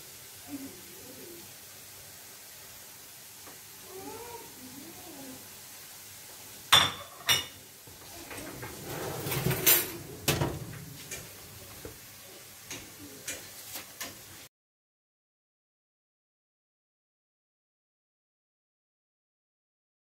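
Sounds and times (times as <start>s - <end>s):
metal tray clanking on oven rack: 6.8s - 11.8s.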